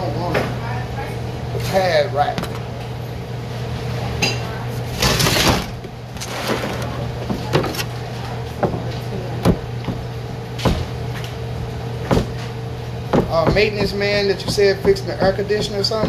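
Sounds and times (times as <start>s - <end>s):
steady low hum: 0.0s - 16.0s
knife chopping on cutting board: 9.4s - 11.0s, 12.0s - 12.5s, 13.1s - 16.0s.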